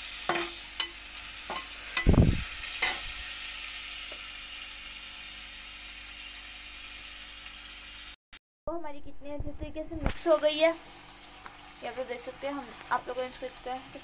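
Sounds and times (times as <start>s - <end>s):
chicken sizzling in oil: 0.0s - 8.2s, 10.2s - 14.0s
metal spatula clinking: 0.3s - 2.1s, 2.8s - 3.1s.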